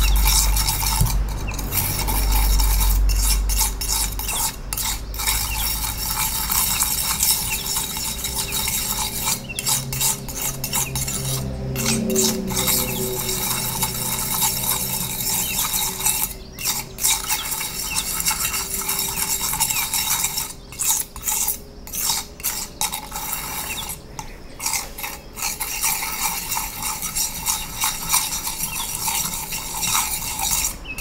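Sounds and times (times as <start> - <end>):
palette knife scraping paste: 0.0 - 31.0.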